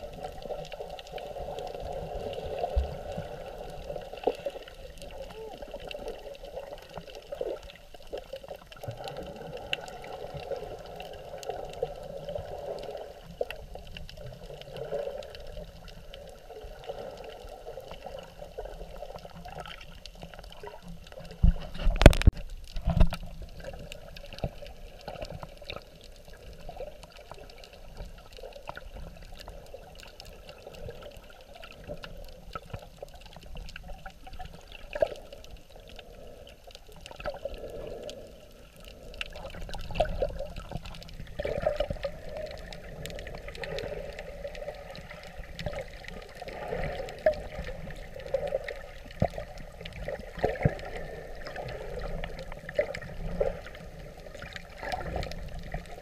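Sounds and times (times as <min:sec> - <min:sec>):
underwater churning wash: 0:00.0 - 0:56.0
faint clicks: 0:17.2 - 0:56.0.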